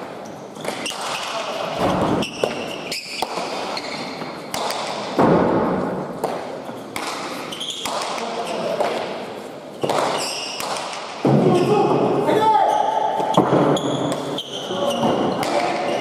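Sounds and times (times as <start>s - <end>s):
shoe squeaks on floor: 0.2s - 4.4s, 6.7s - 8.8s, 9.7s - 10.6s, 12.6s - 16.0s.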